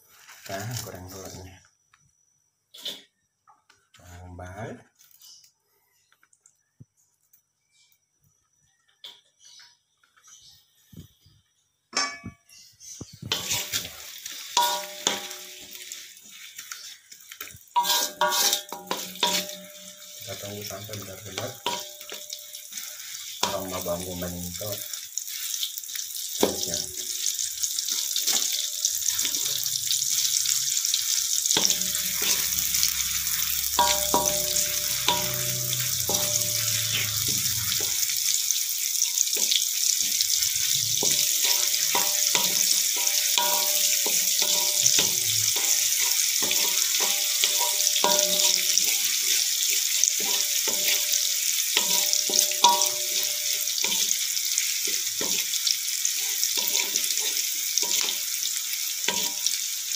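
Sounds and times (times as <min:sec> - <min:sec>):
onions sizzling in hot oil: 0:00.0 - 0:01.5, 0:02.2 - 0:03.1, 0:12.1 - 0:59.9
wooden spatula scraping pan: 0:13.3 - 0:15.3, 0:17.8 - 0:19.6.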